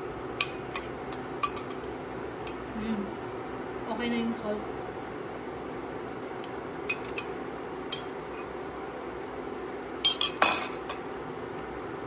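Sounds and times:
utensils clinking on pot: 0:00.4 - 0:02.7, 0:06.9 - 0:08.2, 0:10.0 - 0:11.1.

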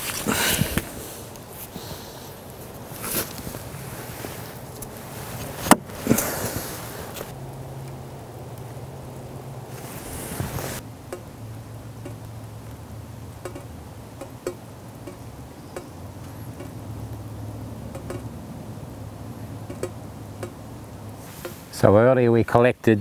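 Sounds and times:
rustle of movement: 0:00.0 - 0:22.1
water dripping into metal pot: 0:11.1 - 0:18.3, 0:19.5 - 0:20.6.

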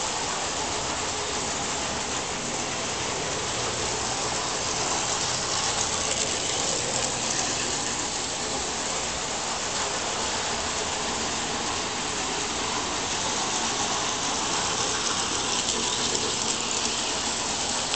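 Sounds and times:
model train motor whirring: 0:00.8 - 0:09.9, 0:12.7 - 0:17.9.

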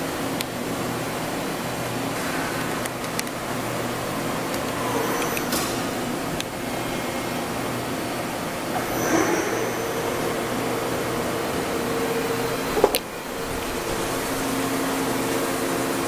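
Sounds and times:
machine hum: 0:00.0 - 0:16.0
spindle whine: 0:00.6 - 0:16.0.

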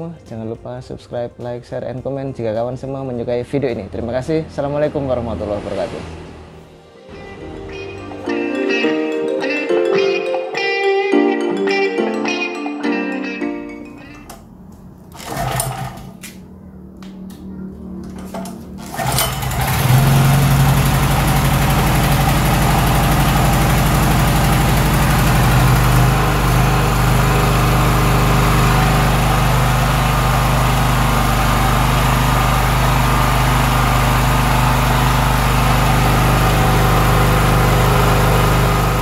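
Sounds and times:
generator engine running: 0:15.1 - 0:16.2, 0:18.1 - 0:39.0
recoil starter pull: 0:15.1 - 0:16.4, 0:18.2 - 0:39.0.

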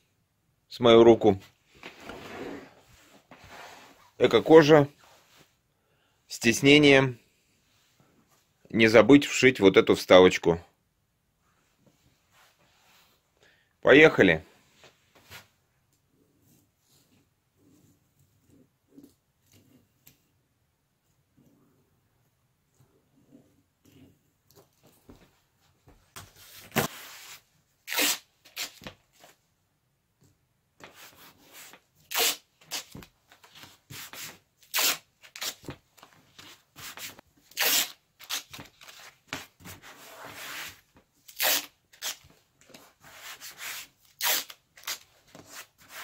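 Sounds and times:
tape rubbed onto cushion: 0:01.9 - 0:04.2, 0:36.4 - 0:46.0
masking tape ripping: 0:27.8 - 0:28.9, 0:32.1 - 0:33.0, 0:34.6 - 0:35.7, 0:37.5 - 0:39.0, 0:41.3 - 0:42.3, 0:44.1 - 0:45.1.

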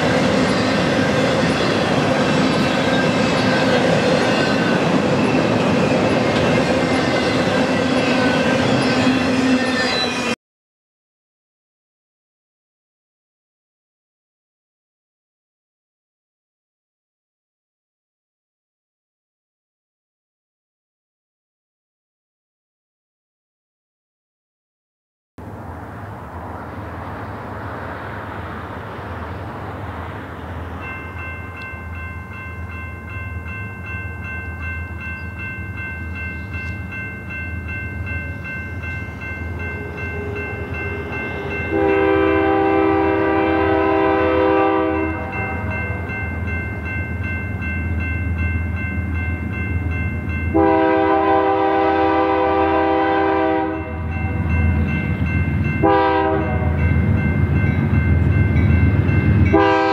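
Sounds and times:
crossing warning bell ringing: 0:00.0 - 0:10.4, 0:29.8 - 0:59.9
diesel locomotive engine rumble: 0:25.4 - 0:59.9
train horn blasts: 0:39.6 - 0:46.2, 0:50.5 - 0:54.6, 0:55.8 - 0:57.0, 0:59.4 - 0:59.9.

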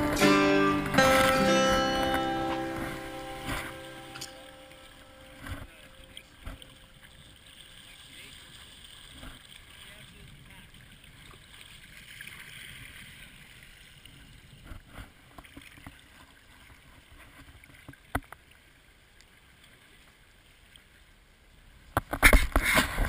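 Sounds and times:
water rushing along kayak hull: 0:00.0 - 0:23.0.

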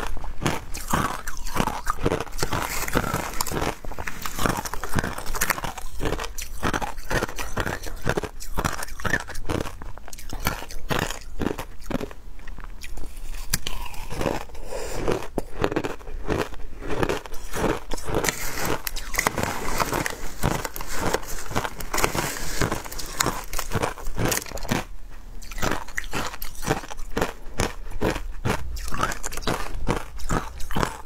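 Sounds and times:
ice crunching between teeth: 0:00.0 - 0:31.0.

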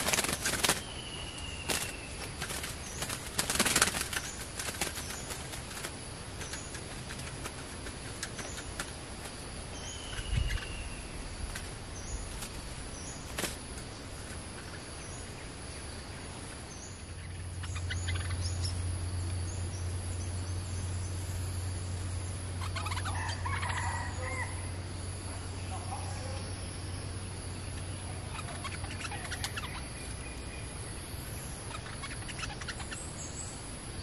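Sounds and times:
high insect drone: 0:00.0 - 0:34.0
low steady hum: 0:00.0 - 0:34.0
bird chattering calls: 0:09.7 - 0:11.2, 0:17.2 - 0:18.8, 0:22.5 - 0:24.6, 0:27.6 - 0:33.5.

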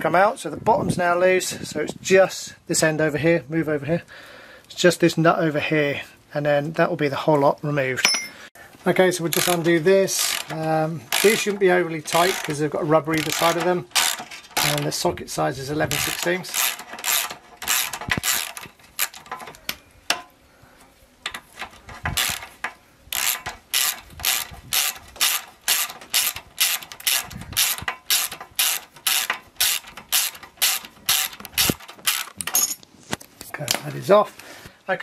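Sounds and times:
socket ratchet clicking: 0:09.3 - 0:15.0, 0:15.9 - 0:19.6, 0:21.3 - 0:32.7.

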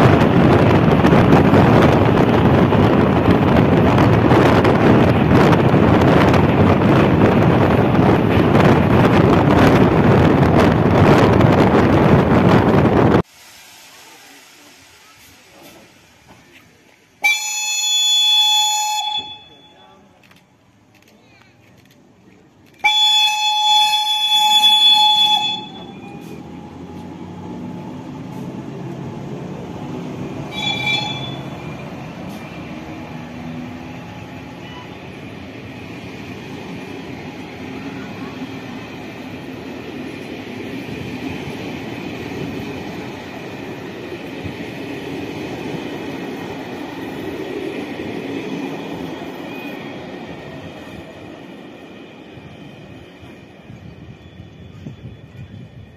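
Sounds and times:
train rumbling on rails: 0:00.0 - 0:55.9
locomotive horn blast: 0:17.2 - 0:19.8, 0:22.8 - 0:26.3, 0:30.5 - 0:31.6.

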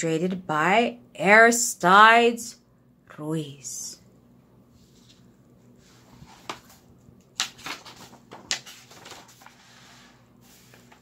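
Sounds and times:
pages rustling: 0:04.8 - 0:11.0
book pages flapping: 0:05.9 - 0:11.0.

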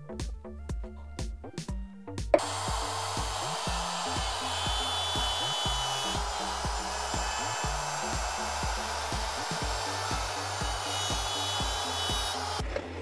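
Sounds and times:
background music with beat: 0:00.0 - 0:13.0
router cutting wood: 0:02.4 - 0:12.6.

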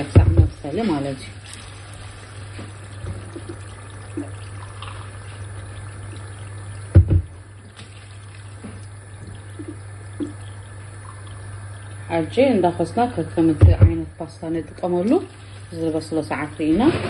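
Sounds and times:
low steady hum: 0:00.0 - 0:17.0
double thump: 0:00.1 - 0:00.6, 0:06.9 - 0:07.4, 0:13.6 - 0:14.0
sauce bubbling in a pan: 0:00.6 - 0:13.5.

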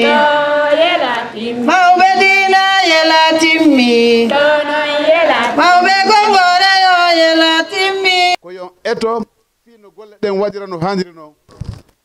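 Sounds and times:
woman chant singing: 0:00.0 - 0:08.4.

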